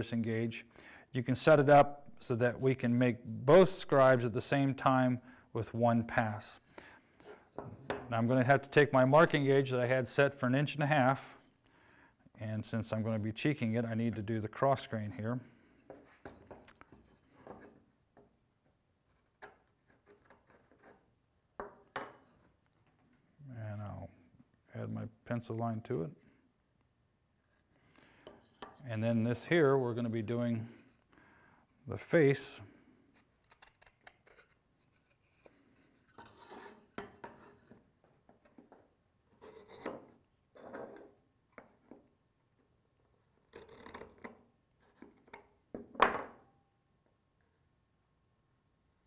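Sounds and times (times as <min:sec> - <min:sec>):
gauge pin scratching wood: 0:19.0 - 0:21.1, 0:33.1 - 0:37.8.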